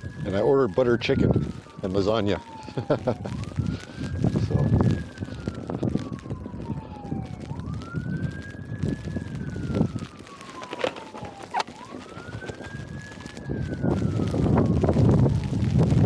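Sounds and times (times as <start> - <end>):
distant siren wailing: 0.0 - 16.0
wind on microphone: 0.0 - 16.0
footsteps crunching in snow: 10.3 - 13.2.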